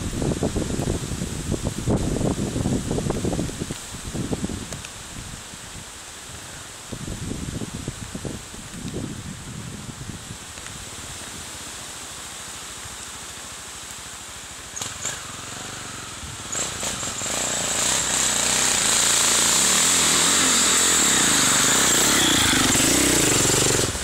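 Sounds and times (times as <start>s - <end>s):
dirt bike engine revving: 14.7s - 24.0s.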